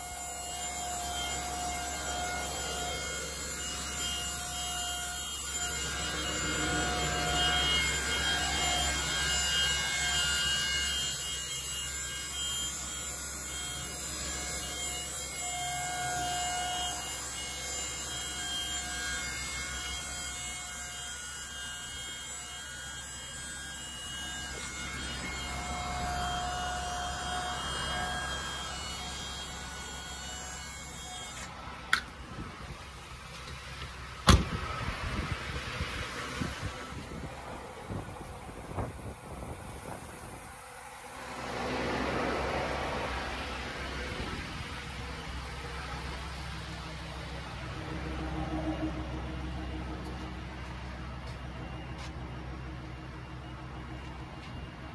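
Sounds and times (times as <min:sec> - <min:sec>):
faint whining tone: 0:00.0 - 0:35.4, 0:36.0 - 0:54.9
engine idling: 0:42.9 - 0:54.9.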